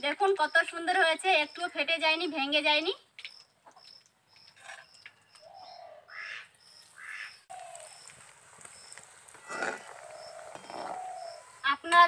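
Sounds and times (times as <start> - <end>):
lower bird calls: 3.8 - 11.7.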